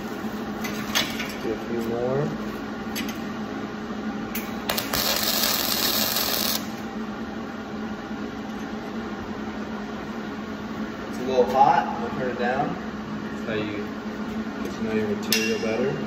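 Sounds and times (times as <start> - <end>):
steady low hum: 0.0 - 16.0
welding arc crackling: 4.4 - 6.9.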